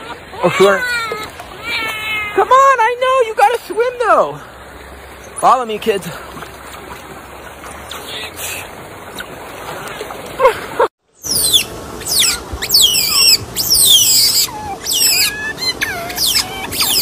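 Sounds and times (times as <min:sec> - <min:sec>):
otters squealing: 0:00.0 - 0:04.3, 0:11.2 - 0:17.0
water swirling: 0:00.0 - 0:17.0.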